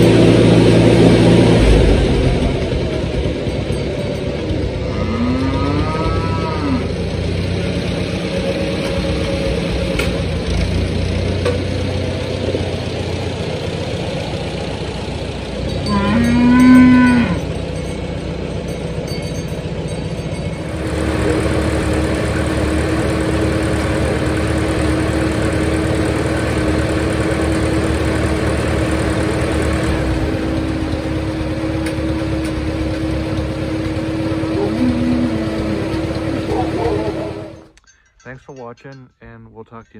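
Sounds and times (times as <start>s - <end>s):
tractor engine running: 0.0s - 39.9s
cow mooing: 4.8s - 7.0s, 15.8s - 17.6s, 34.4s - 37.6s.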